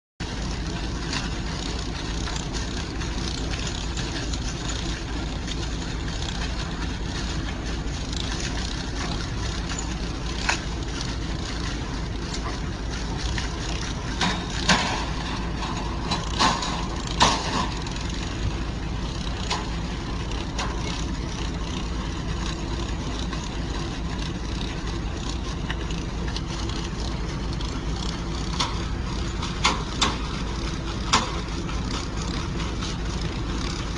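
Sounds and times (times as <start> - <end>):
vehicle engine idling: 0.2 - 33.9
sharp knocks and clatters: 0.8 - 33.9.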